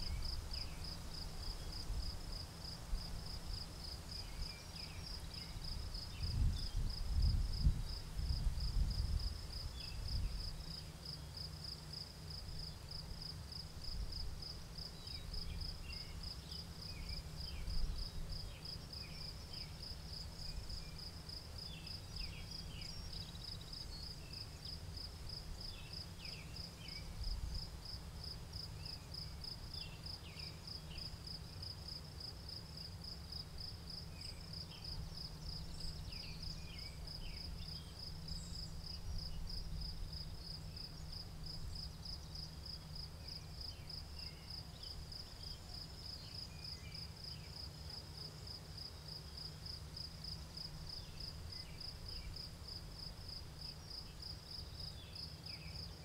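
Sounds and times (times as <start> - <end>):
crickets chirping: 0.0 - 56.0.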